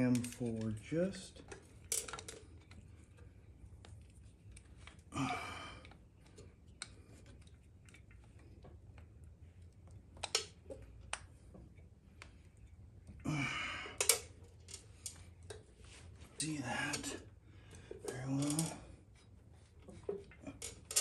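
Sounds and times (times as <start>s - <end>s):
person breathing heavily: 5.1s - 5.8s, 13.2s - 14.1s.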